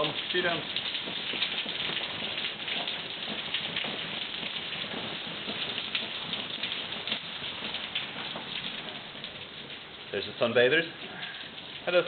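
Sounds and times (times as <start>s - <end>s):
heavy rain and hail pelting: 0.0s - 12.0s.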